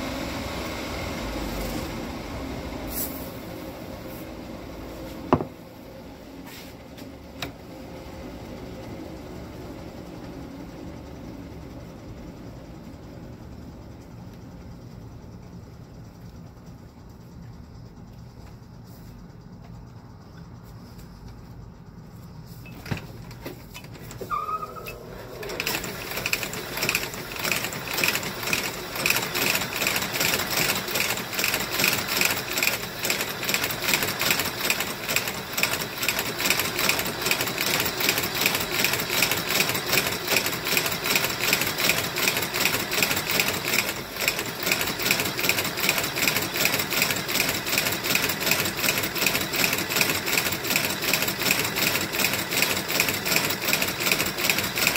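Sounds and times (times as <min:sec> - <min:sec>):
brief squeak: 0:24.1 - 0:25.3
stitching machine sewing: 0:24.2 - 0:54.9.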